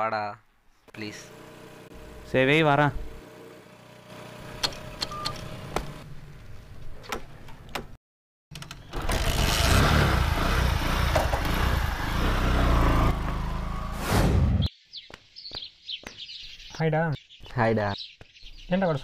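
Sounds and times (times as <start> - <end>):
motorcycle engine: 0.9 - 6.1, 8.5 - 14.3.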